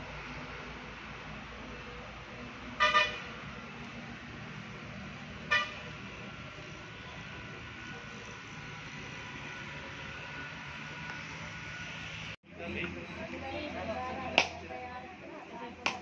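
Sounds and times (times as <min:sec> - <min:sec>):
horn tooting: 0:02.8 - 0:03.4, 0:05.5 - 0:06.0.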